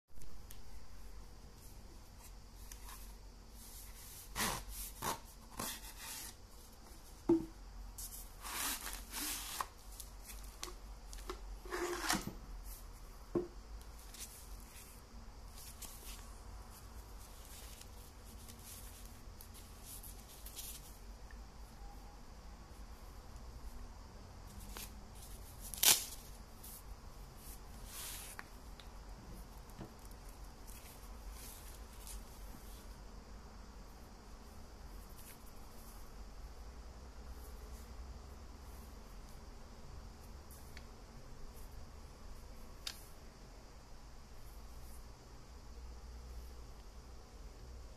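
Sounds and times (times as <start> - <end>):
loud rip of fabric: 25.7 - 26.2.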